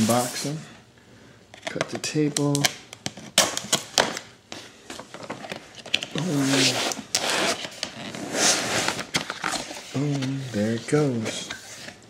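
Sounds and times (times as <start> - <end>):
packing tape tearing: 2.4 - 4.3, 5.4 - 10.3.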